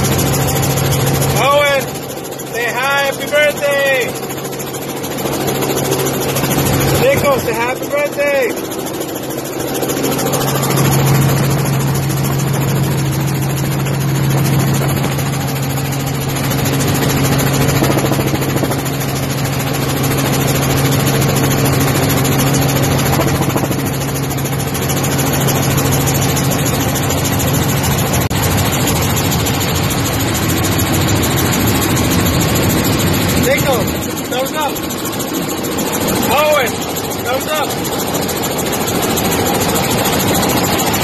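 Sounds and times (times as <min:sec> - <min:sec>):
helicopter engine and rotor hum: 0:00.0 - 0:41.0
wind roar: 0:16.8 - 0:19.0.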